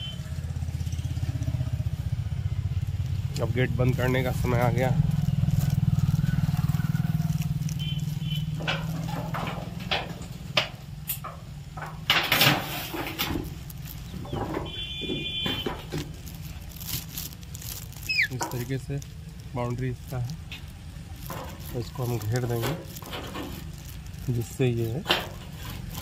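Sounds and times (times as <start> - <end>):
garden gate knocking and rattling: 8.5 - 16.3, 24.8 - 26.0
parakeet high call: 18.1 - 18.3.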